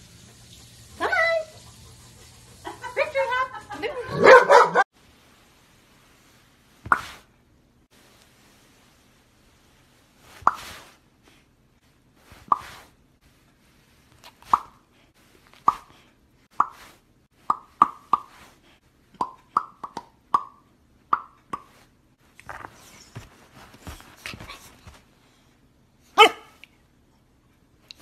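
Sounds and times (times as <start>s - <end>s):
mouth popping clicks: 15.6s - 15.9s, 16.6s - 16.8s, 19.2s - 21.7s.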